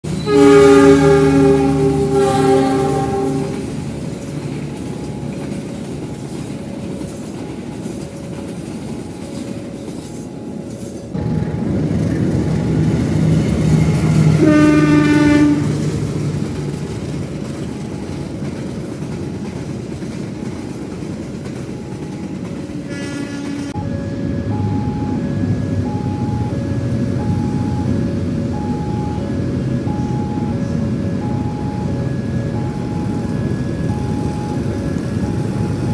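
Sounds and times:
train wheels rumbling on rails: 0:00.0 - 0:35.9
train horn blast: 0:00.1 - 0:03.8, 0:14.2 - 0:15.9, 0:22.8 - 0:23.9.

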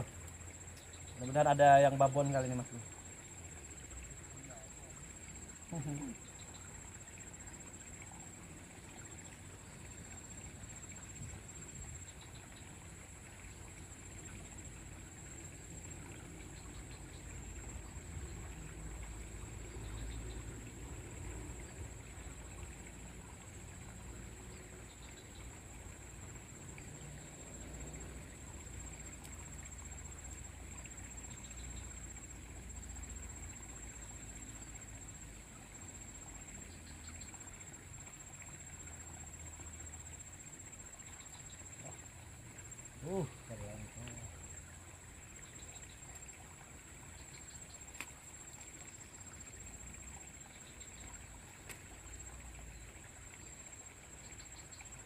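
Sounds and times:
faint chirps: 0:00.0 - 0:20.7, 0:24.3 - 0:46.4.

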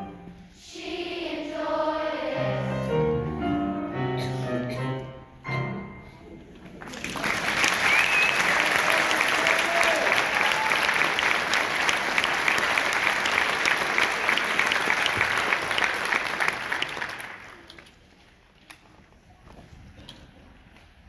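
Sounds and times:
audience applause: 0:06.7 - 0:17.9.

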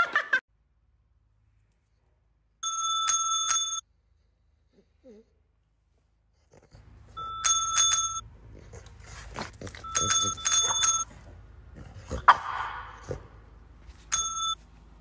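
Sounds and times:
small metal bell ringing: 0:02.6 - 0:03.8, 0:07.2 - 0:08.2, 0:09.8 - 0:11.1, 0:14.0 - 0:14.6.

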